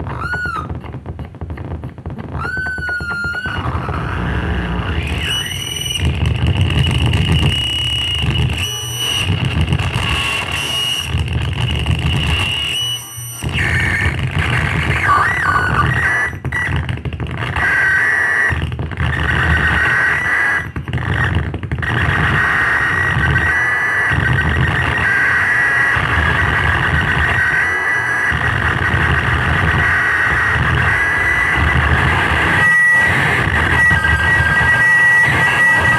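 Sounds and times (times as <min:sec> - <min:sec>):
electronic high whines: 0:02.4 - 0:16.6, 0:22.3 - 0:35.9
dense low electronic rumble: 0:03.6 - 0:05.2, 0:13.4 - 0:17.5, 0:28.4 - 0:35.9.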